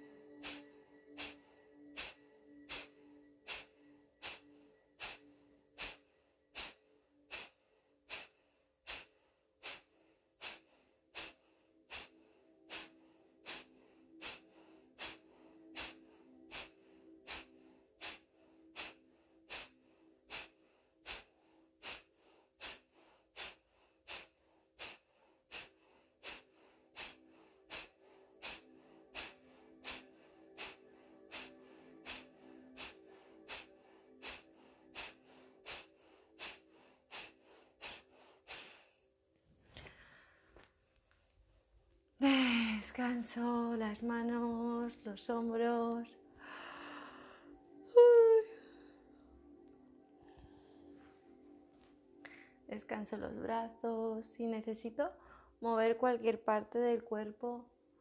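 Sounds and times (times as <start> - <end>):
forceful nasal exhalations: 0.0 - 39.0.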